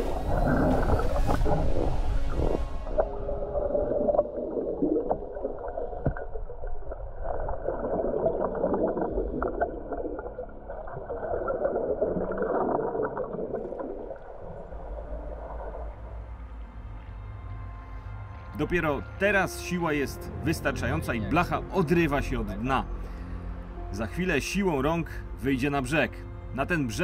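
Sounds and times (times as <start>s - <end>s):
underwater air bubbling: 0.0s - 16.2s.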